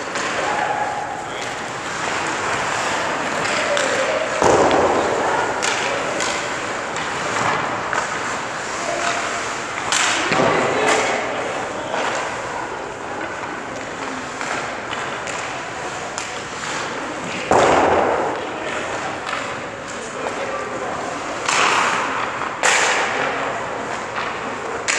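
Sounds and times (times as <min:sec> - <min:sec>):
skate blades scraping ice: 0:00.0 - 0:17.5.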